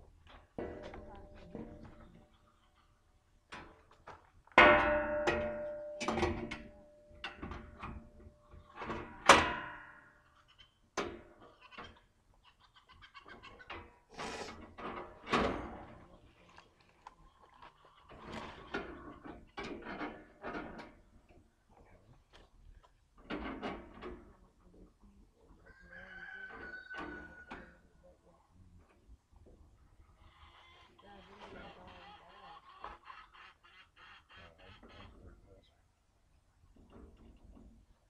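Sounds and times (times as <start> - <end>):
loud ringing metal clang: 4.6 - 7.3
metal clanking and rattling: 4.6 - 10.1.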